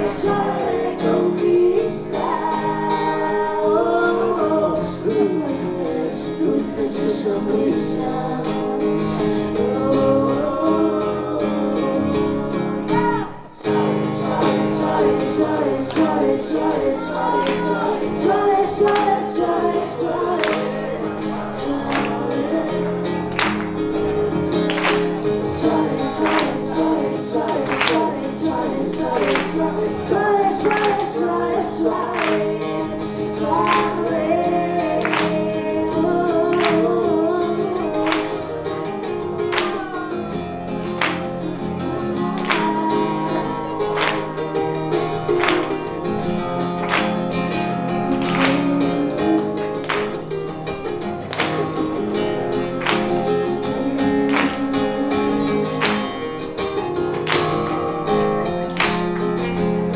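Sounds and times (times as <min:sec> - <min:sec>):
woman singing: 0:00.0 - 0:23.1, 0:25.4 - 0:39.0, 0:42.2 - 0:44.3, 0:47.6 - 0:50.2, 0:53.4 - 0:56.3
acoustic guitars strumming chords: 0:00.0 - 0:59.9.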